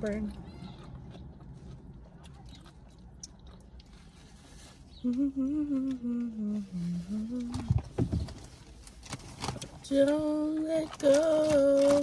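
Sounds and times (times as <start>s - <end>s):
chewing sandwich: 0.0s - 5.8s
woman humming: 5.0s - 7.7s.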